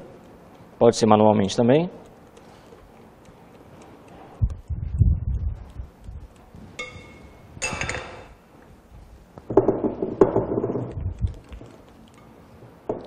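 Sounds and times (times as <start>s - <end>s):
glass bowl clink: 6.8s - 8.2s.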